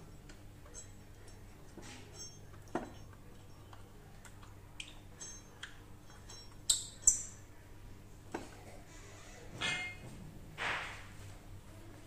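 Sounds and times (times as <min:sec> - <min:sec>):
metal bolts clicking and clinking: 0:00.0 - 0:03.7, 0:04.9 - 0:07.4
sharp ringing metal clinks: 0:02.1 - 0:03.5.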